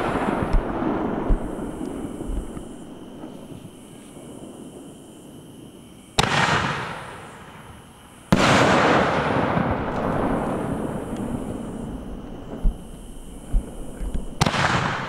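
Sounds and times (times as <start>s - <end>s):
firework bursts with crackle: 0.0s - 3.7s, 6.2s - 7.7s, 8.3s - 15.0s.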